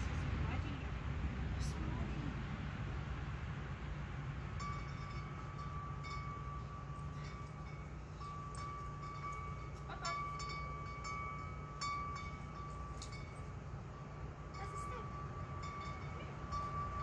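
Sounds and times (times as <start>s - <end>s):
wind chime ringing: 4.5s - 17.0s.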